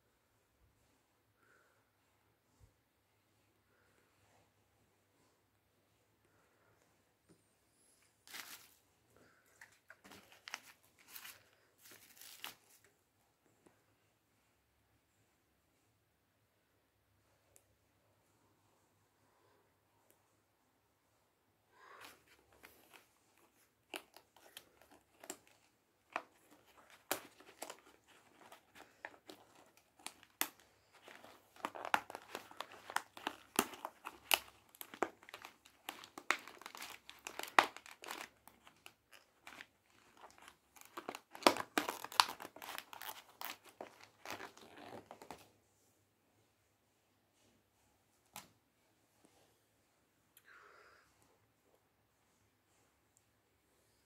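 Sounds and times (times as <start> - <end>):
foil and paper crinkling: 8.3 - 8.8, 9.6 - 12.8, 22.0 - 45.4.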